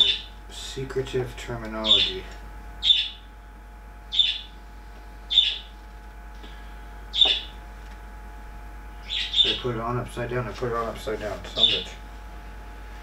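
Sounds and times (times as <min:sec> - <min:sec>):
faint steady hum: 0:00.0 - 0:13.0
bird chirping: 0:01.8 - 0:02.2, 0:02.8 - 0:03.3, 0:04.1 - 0:04.5, 0:05.3 - 0:05.7, 0:07.1 - 0:07.6, 0:09.0 - 0:09.6.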